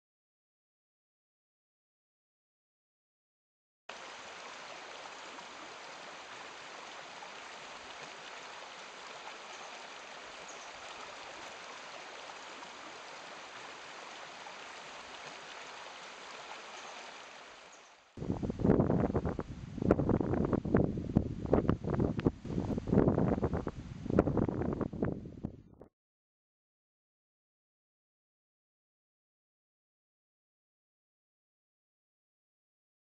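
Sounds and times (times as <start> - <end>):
stream rushing over rocks: 3.9 - 18.2
wind buffeting microphone: 18.2 - 25.8.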